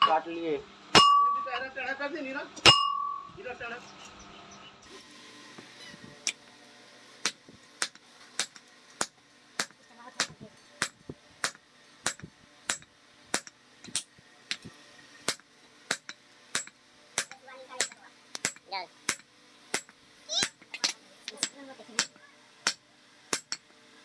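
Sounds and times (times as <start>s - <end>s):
hammer striking iron on anvil: 0.9s - 1.6s, 2.6s - 3.3s, 7.2s - 23.7s.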